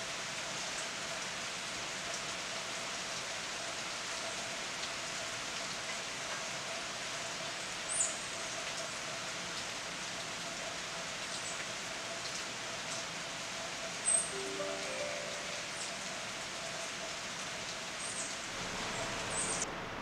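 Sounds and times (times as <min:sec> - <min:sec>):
rain falling through foliage: 0:00.0 - 0:20.0
faint drip ticks: 0:02.1 - 0:13.1
short high note: 0:14.2 - 0:16.4.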